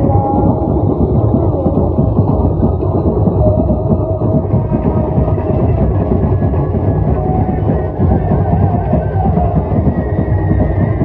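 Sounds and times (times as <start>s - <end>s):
muffled drums beating fast: 0.0s - 11.0s.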